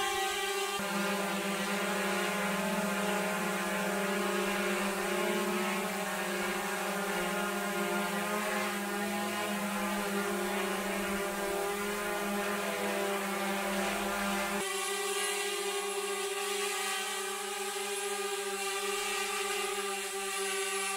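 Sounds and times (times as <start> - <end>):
drone propellers humming: 0.0 - 20.9.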